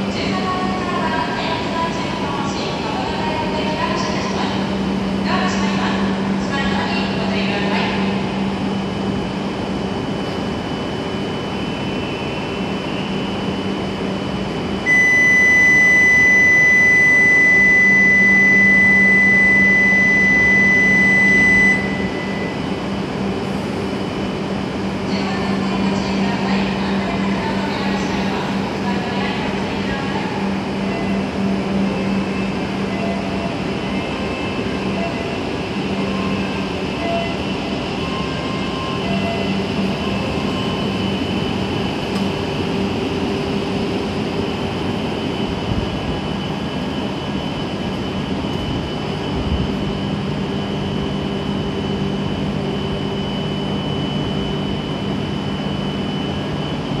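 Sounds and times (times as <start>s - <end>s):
steady whining tones: 0.0s - 57.0s
train motors humming: 21.9s - 53.0s.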